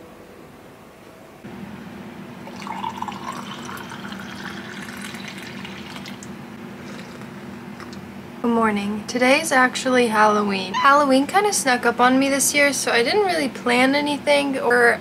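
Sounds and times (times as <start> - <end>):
low steady hum: 0.0 - 15.0
coffee pouring into mug: 2.5 - 6.3.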